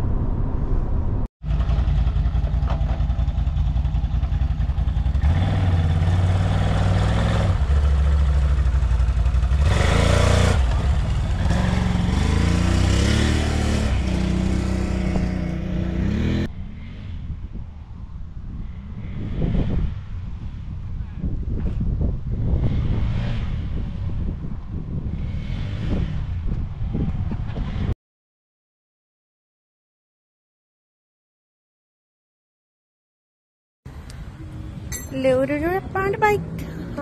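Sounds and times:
atv engine revving: 1.4 - 17.1, 22.4 - 24.2, 25.0 - 26.6.

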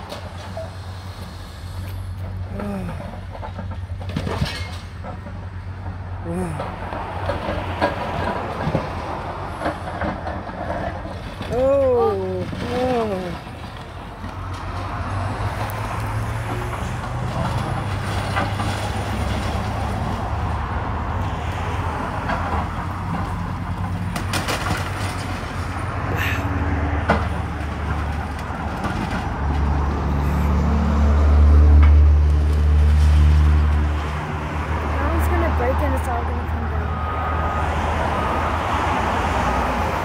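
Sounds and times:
excavator diesel engine running: 0.0 - 40.0
debris cracking: 9.6 - 16.1, 23.2 - 25.9.

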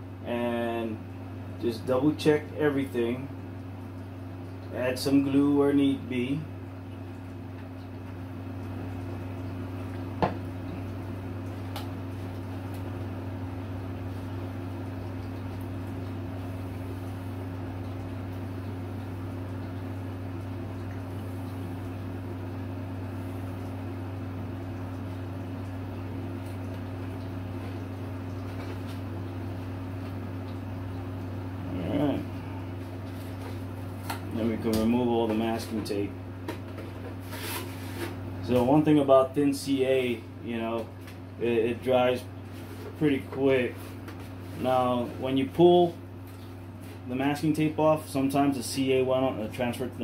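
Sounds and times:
machine hum: 0.0 - 50.0.

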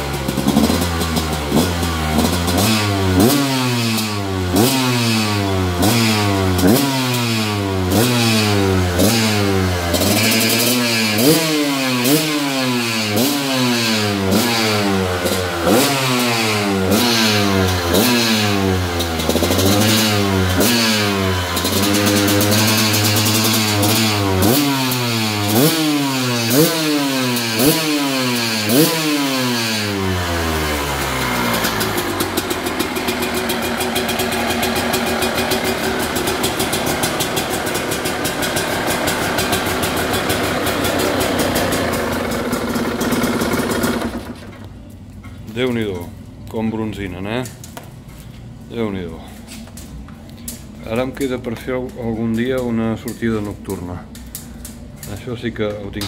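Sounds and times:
dirt bike engine revving: 0.0 - 44.6
dirt bike engine idling: 0.0 - 44.8.

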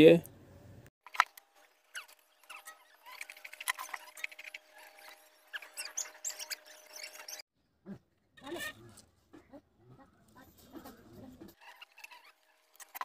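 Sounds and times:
short high squeaks: 1.9 - 7.4.

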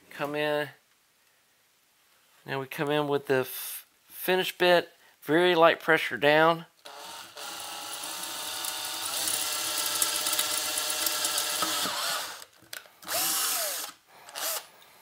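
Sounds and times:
power drill boring through metal: 6.8 - 14.7.

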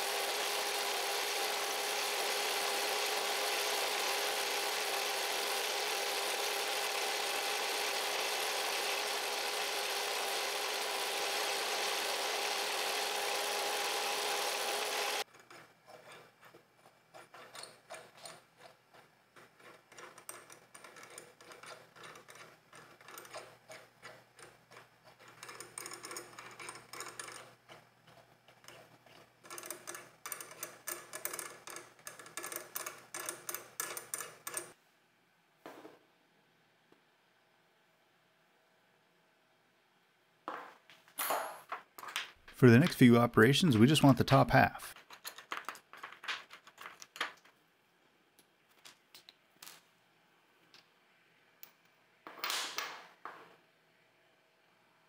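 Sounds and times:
milling machine spindle running: 0.0 - 15.2.

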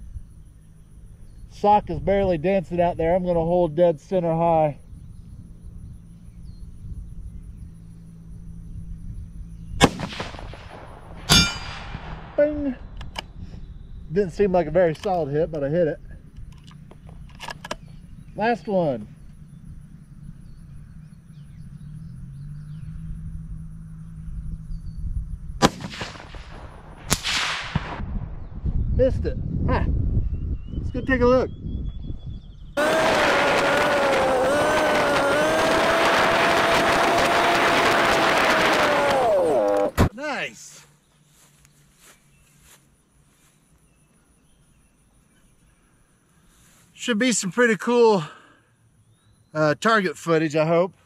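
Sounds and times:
rifle shot with echo: 9.8 - 12.7, 25.6 - 28.1
sharp crack: 9.8 - 13.3, 25.6 - 28.1, 32.8 - 40.1.

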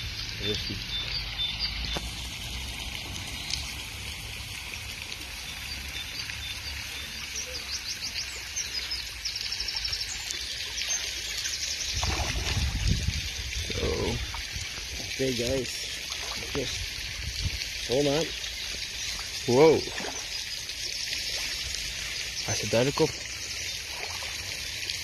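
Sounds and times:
fish splashing at water surface: 10.4 - 22.4, 23.1 - 25.0.

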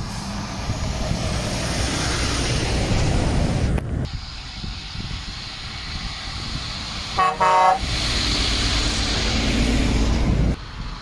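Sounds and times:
truck engine rumbling: 0.0 - 11.0
truck horn toots: 7.2 - 7.9.

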